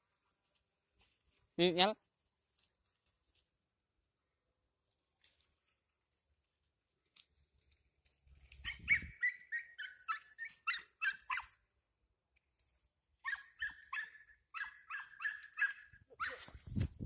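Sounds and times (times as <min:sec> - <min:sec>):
dog yelping: 0:08.6 - 0:11.6, 0:13.2 - 0:16.6.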